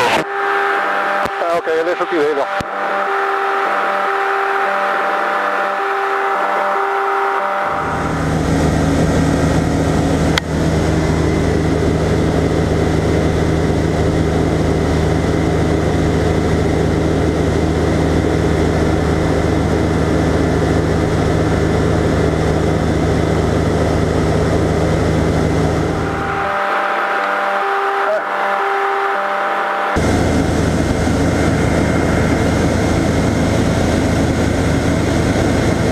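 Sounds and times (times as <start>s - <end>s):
light aircraft engine droning: 7.8s - 27.7s, 29.9s - 35.9s.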